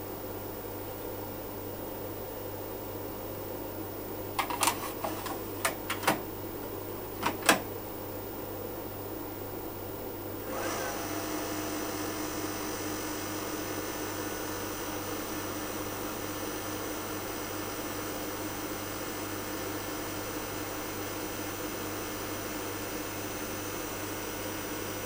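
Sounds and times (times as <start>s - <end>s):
tape cartridge clicks and knocks: 4.4s - 6.3s, 7.2s - 7.7s
tape drive motor whining: 4.4s - 6.4s.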